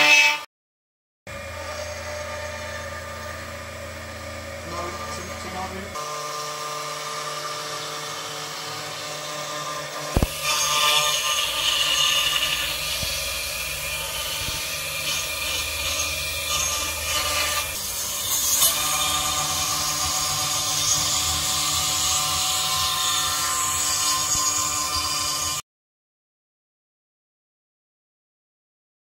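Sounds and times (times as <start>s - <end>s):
milling spindle high whine: 1.3s - 7.2s
end mill cutting wood: 1.3s - 25.6s.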